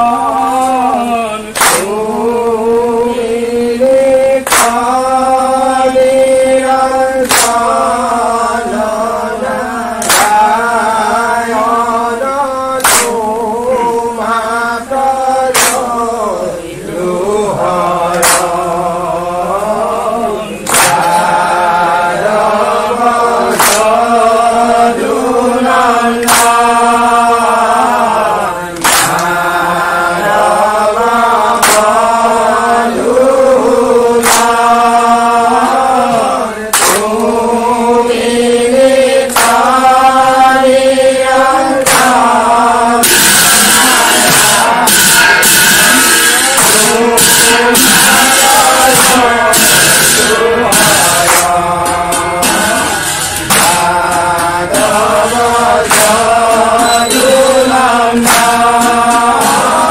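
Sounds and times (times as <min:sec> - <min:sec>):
group clapping together: 0:00.0 - 0:59.9
men chanting in unison: 0:00.0 - 0:59.9.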